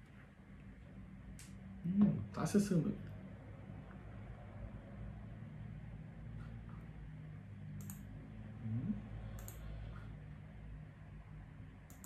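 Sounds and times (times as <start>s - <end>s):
steady low hum: 0.0s - 12.0s
faint short clicks: 7.8s - 8.0s, 9.4s - 9.6s
low sound rising in pitch: 8.4s - 9.4s.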